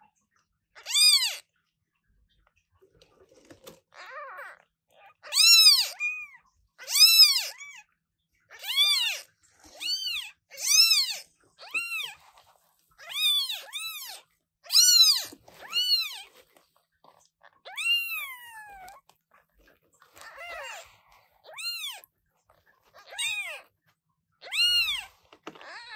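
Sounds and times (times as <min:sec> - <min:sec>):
kittens meowing: 0:00.8 - 0:01.4, 0:03.9 - 0:07.9, 0:08.5 - 0:12.4, 0:13.0 - 0:16.3, 0:17.6 - 0:19.1, 0:20.1 - 0:22.1, 0:22.9 - 0:23.7, 0:24.4 - 0:25.9.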